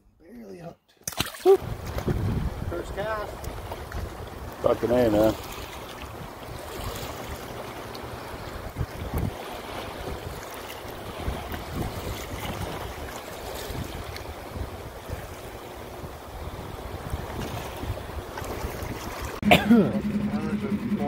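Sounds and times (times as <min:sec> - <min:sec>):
small waves lapping on rocks: 0:01.1 - 0:19.4
wind gusting on microphone: 0:01.6 - 0:04.6, 0:08.2 - 0:21.0.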